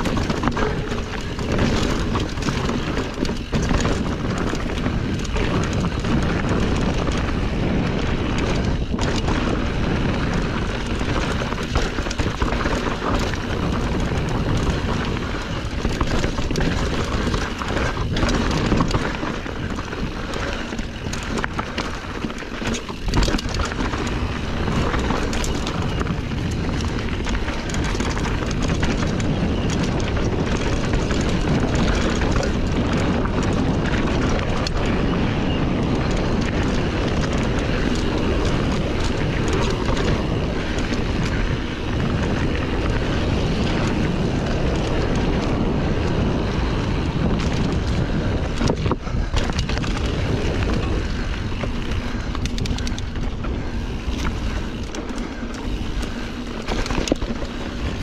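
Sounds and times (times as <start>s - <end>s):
bike rattling over bumps: 0.0s - 58.0s
tyres crunching over rocks: 0.0s - 58.0s
wind on microphone: 0.0s - 58.0s.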